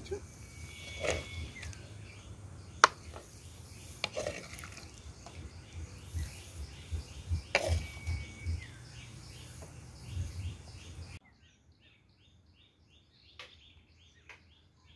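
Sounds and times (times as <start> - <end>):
insects: 0.0 - 11.2
bird chirping: 0.0 - 14.9.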